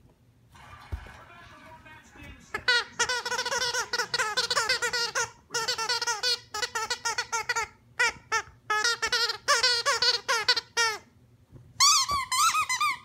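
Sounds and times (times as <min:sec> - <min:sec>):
squeaky toy squeaking: 0:02.5 - 0:11.1, 0:11.8 - 0:13.0.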